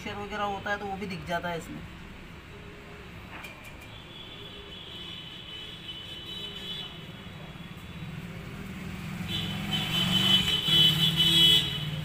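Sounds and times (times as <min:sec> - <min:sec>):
vehicle engine passing by: 0:08.0 - 0:12.0.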